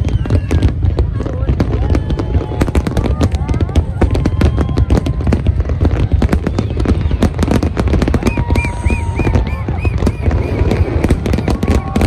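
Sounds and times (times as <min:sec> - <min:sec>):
fireworks crackling bangs: 0:00.0 - 0:12.0
high whistling tones: 0:08.2 - 0:12.0.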